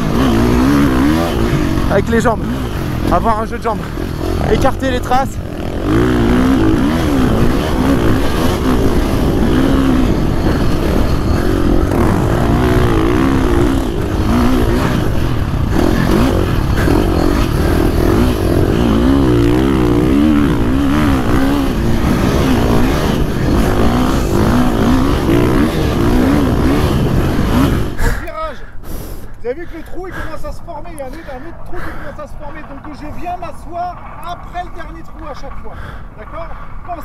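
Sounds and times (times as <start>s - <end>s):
motocross engine revving: 0.0s - 28.3s.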